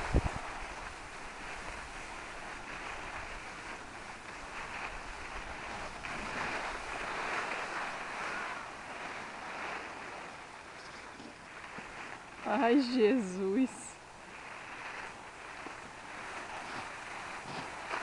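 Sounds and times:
snowboard sliding over snow: 0.0s - 18.0s
wind on microphone: 0.0s - 18.0s.

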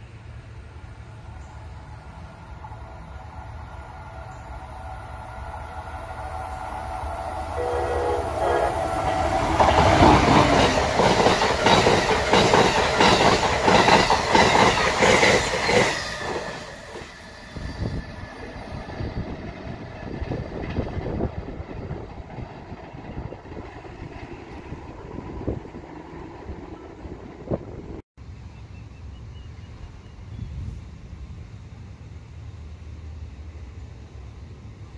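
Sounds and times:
train horn: 7.2s - 10.3s
train wheels clattering over rails: 8.9s - 17.3s.

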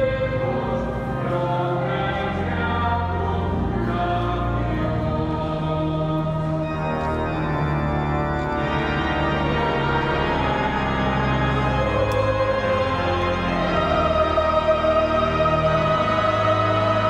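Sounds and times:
pipe organ playing chords: 0.0s - 17.0s.

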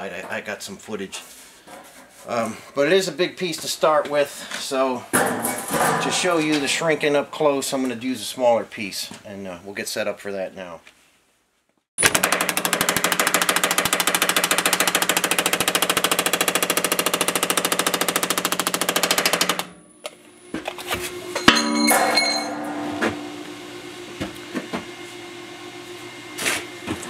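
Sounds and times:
power hammer pounding sheet metal: 12.0s - 19.8s, 21.4s - 23.6s
metal clank with ringing: 21.3s - 23.6s.

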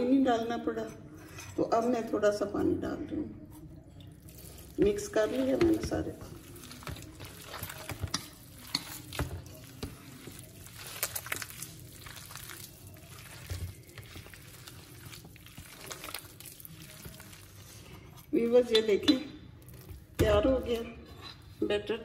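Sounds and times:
hand squelching wet batter: 4.2s - 18.3s.

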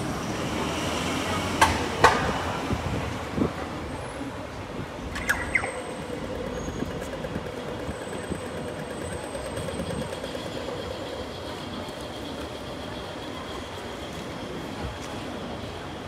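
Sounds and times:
city street traffic: 0.0s - 16.0s
sharp clicks: 5.1s - 10.2s.

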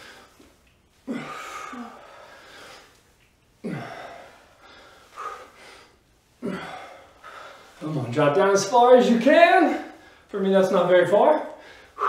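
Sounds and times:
person grunting with exhalations: 1.0s - 2.1s, 3.6s - 4.4s, 6.4s - 7.0s.

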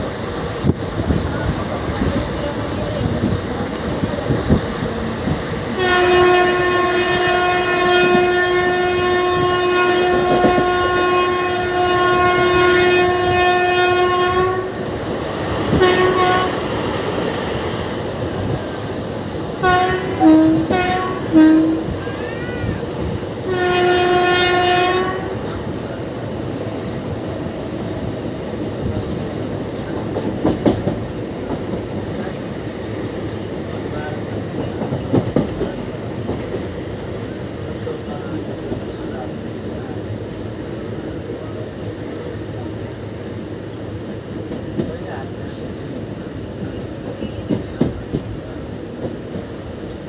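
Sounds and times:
train rumble and clickety-clack: 0.0s - 50.0s
train horn blasts and toots: 5.8s - 14.8s, 15.7s - 16.6s, 19.6s - 21.9s, 23.4s - 25.4s.

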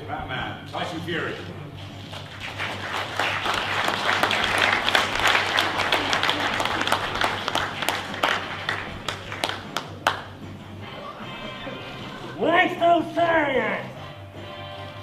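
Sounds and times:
audience applauding: 2.1s - 10.4s.

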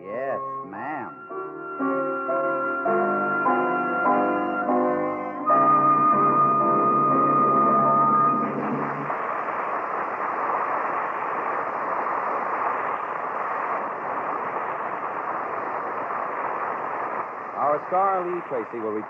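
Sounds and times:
closing music: 0.3s - 9.1s
disc surface hiss: 1.0s - 19.0s.

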